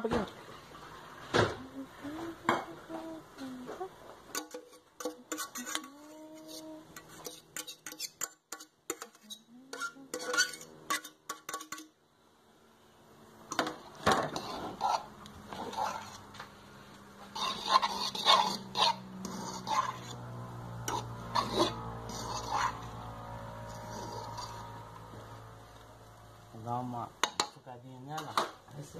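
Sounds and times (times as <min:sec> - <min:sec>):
cutlery clinking against pot and plates: 0:04.3 - 0:06.0, 0:07.0 - 0:11.9.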